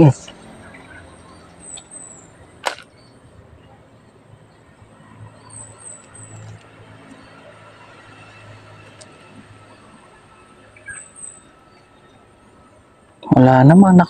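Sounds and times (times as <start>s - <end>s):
small birds chirping: 0.0s - 14.0s
sharp click: 2.6s - 2.9s.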